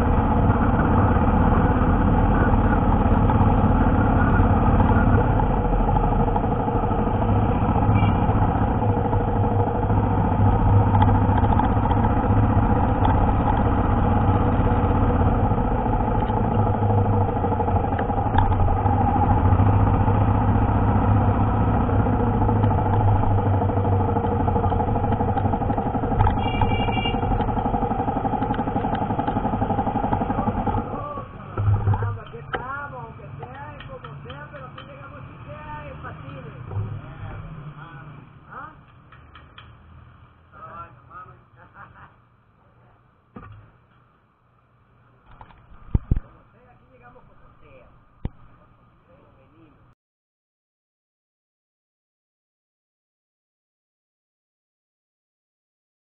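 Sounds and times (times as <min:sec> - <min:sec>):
motorcycle engine running: 0:00.0 - 0:35.0
road noise: 0:00.0 - 0:49.9.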